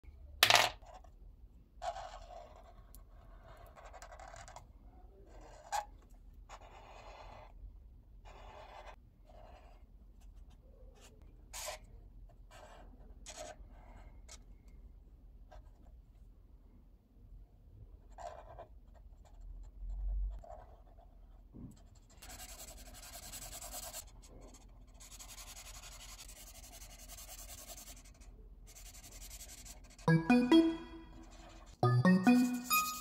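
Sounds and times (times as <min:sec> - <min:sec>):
marker scratching on paper: 0:06.5 - 0:07.5, 0:08.2 - 0:11.8, 0:18.1 - 0:19.4, 0:20.4 - 0:21.2, 0:21.8 - 0:30.0.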